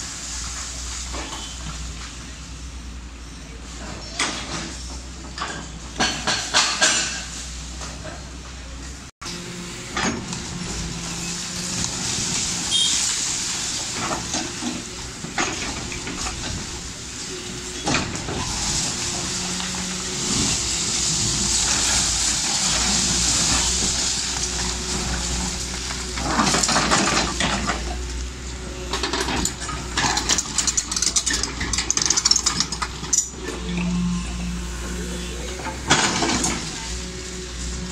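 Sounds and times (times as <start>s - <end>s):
excavator diesel engine running: 0.0s - 37.9s
rubble crashing and clattering: 11.6s - 28.2s, 28.8s - 33.4s.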